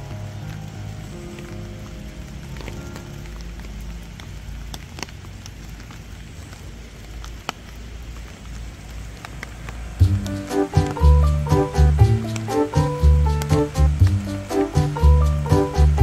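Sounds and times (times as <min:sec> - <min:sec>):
rain falling: 0:00.0 - 0:16.0
raindrops ticking: 0:00.0 - 0:16.0
loud background music: 0:10.0 - 0:16.0.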